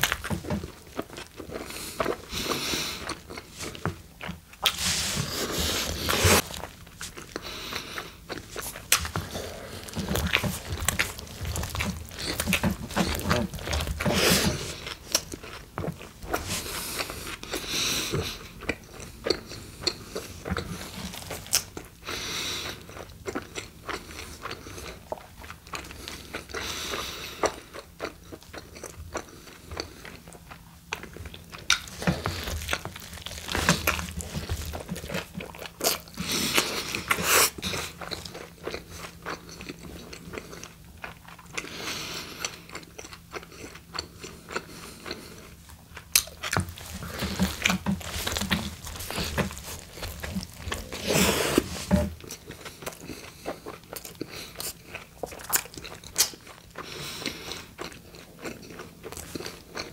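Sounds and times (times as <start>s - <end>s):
chewing with mouth clicks: 0.0s - 59.9s
tortilla rustling: 4.6s - 7.3s, 8.4s - 15.1s, 31.7s - 38.1s, 46.2s - 52.5s
biting into a tortilla: 8.2s - 17.6s, 18.2s - 22.0s, 27.3s - 41.7s, 42.3s - 59.9s.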